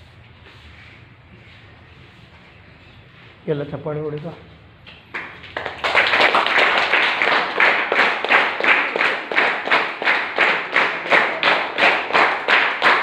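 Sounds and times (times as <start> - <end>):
children clapping rhythmically: 4.9 - 13.0.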